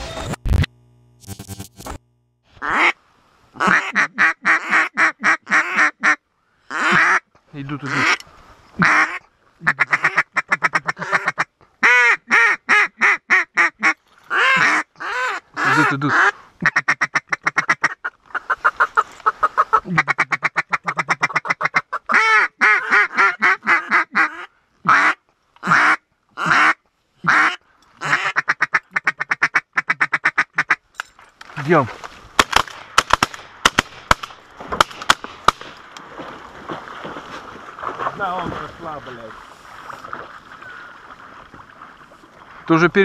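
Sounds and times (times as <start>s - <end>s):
duck call clucking and quacking: 2.6s - 3.0s, 3.6s - 7.2s, 8.8s - 30.8s.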